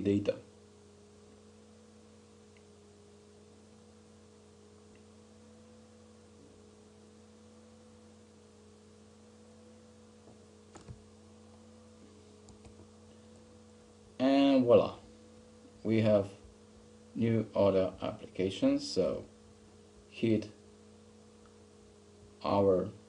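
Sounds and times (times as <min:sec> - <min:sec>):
faint electrical hum: 0:00.0 - 0:23.0
faint clicks: 0:12.4 - 0:12.9.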